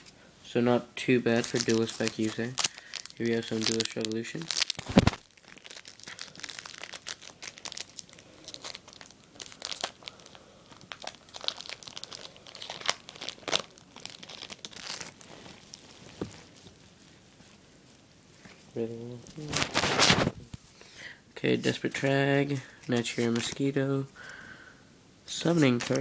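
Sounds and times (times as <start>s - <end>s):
foil wrapper tearing and crinkling: 1.4s - 16.2s, 19.4s - 20.4s, 25.6s - 26.0s.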